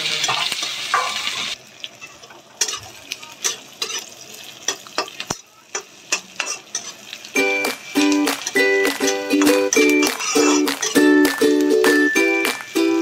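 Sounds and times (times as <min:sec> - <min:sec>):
metal spatula scraping a pan: 0:00.0 - 0:07.1, 0:08.0 - 0:11.4
onions sizzling in oil: 0:00.0 - 0:13.0
plucked melody music: 0:07.4 - 0:13.0.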